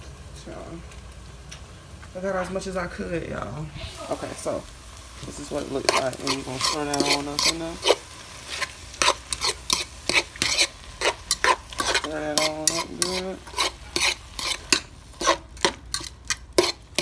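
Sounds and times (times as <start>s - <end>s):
metal utensil scraping a pot: 5.7s - 17.0s.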